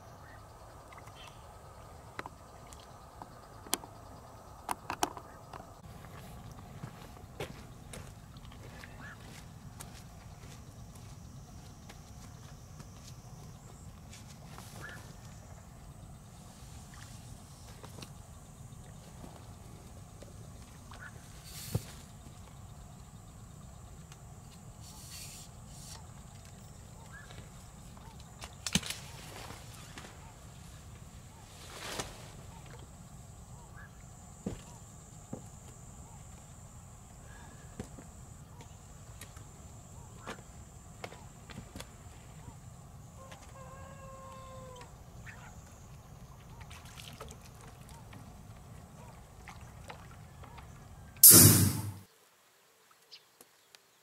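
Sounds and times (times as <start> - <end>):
night outdoor background: 0.0 - 54.0
faint small animal calls: 43.2 - 45.6.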